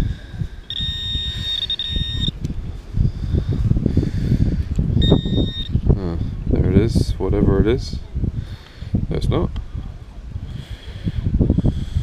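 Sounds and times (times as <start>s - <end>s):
wind buffeting microphone: 0.0s - 12.0s
pinpointer high buzzing tone: 0.6s - 2.4s, 5.0s - 5.8s.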